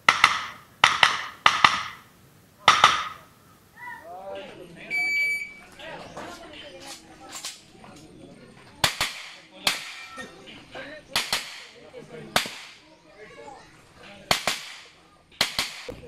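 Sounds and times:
gunshots with short echo: 14.3 - 15.9.

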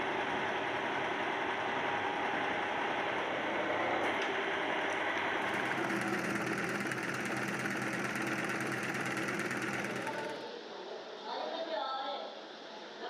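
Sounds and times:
steady machine hum: 0.0 - 10.5
stitching machine needle clatter: 5.2 - 10.4.

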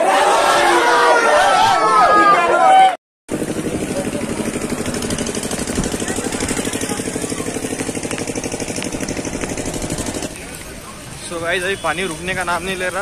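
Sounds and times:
engine idling: 3.3 - 10.9.

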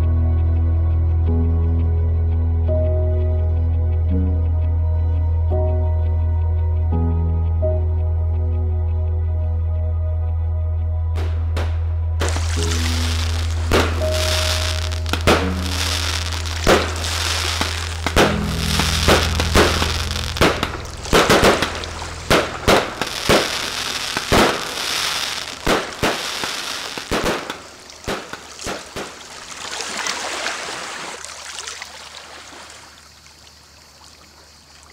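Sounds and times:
background music: 0.0 - 29.3
fireworks bangs: 11.2 - 29.6
fireworks crackling: 11.2 - 30.8.

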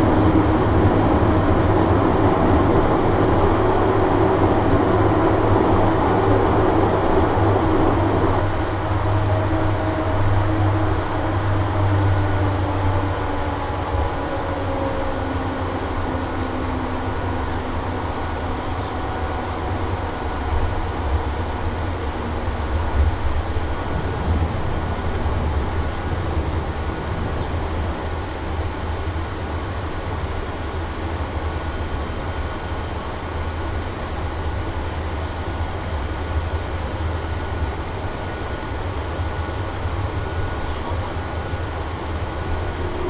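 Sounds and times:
aircraft cabin engine rumble: 0.0 - 43.0.

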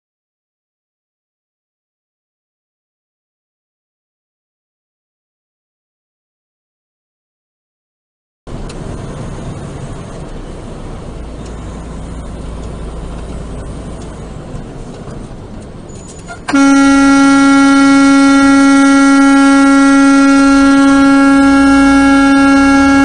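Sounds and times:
truck road noise: 8.5 - 23.0
truck horn blast: 16.4 - 23.0.

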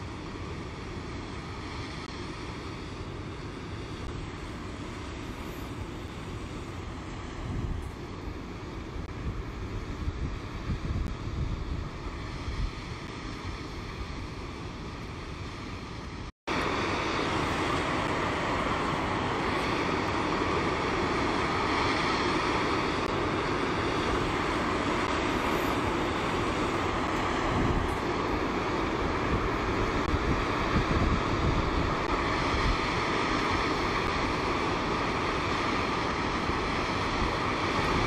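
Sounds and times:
waterfall rushing: 16.6 - 30.7.

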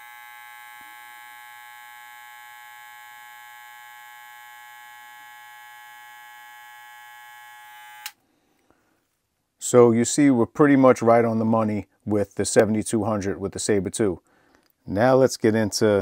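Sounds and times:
hair clipper buzzing: 0.0 - 8.2.

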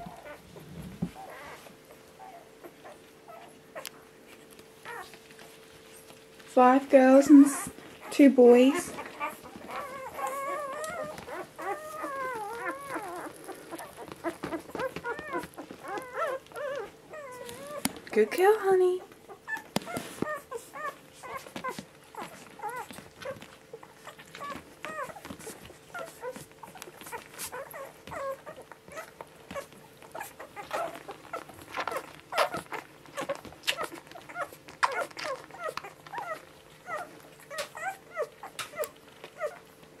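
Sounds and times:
puppies squeaking and whimpering: 0.0 - 40.0.

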